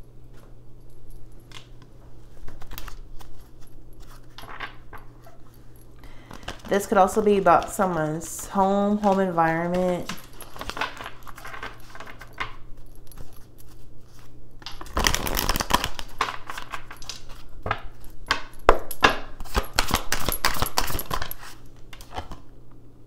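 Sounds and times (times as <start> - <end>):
cards being shuffled: 2.3 - 5.4, 6.2 - 12.5, 13.2 - 17.8, 19.4 - 22.4.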